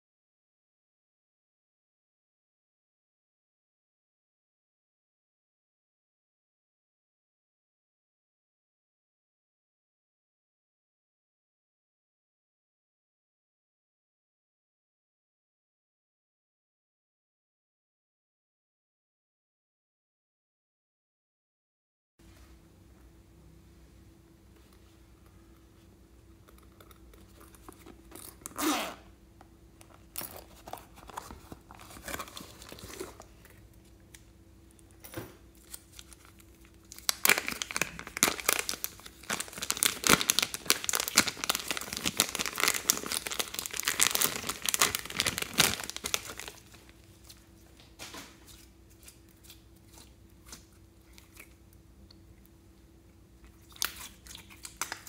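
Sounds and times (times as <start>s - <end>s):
plastic bag crinkling: 30.0s - 33.6s, 35.6s - 48.6s.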